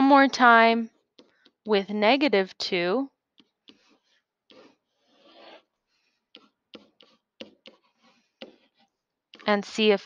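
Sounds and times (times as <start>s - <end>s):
stylus scratching and tapping: 0.9s - 1.7s, 3.3s - 10.0s.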